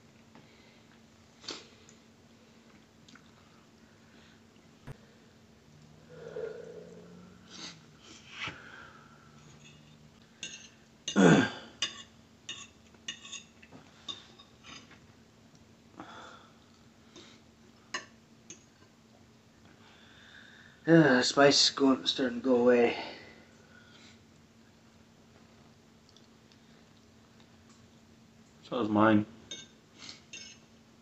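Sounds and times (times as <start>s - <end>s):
people breathing and sniffing: 5.9s - 9.5s.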